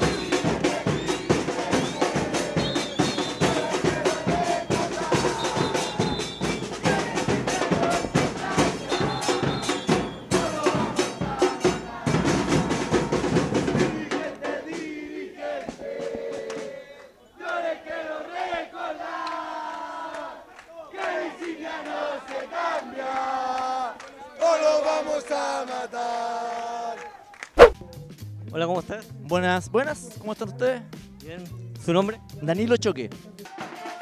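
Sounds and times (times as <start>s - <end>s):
drums beating fast rhythm: 0.0s - 15.0s
crowd singing: 0.0s - 27.0s.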